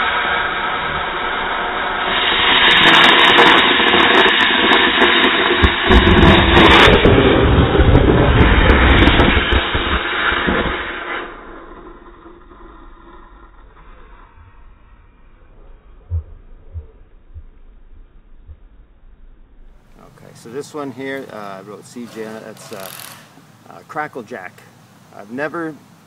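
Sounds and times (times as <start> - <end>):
firework hissing rush of sparks: 0.0 - 12.7, 19.9 - 23.5
sharp crackles: 0.0 - 16.8, 19.6 - 24.6.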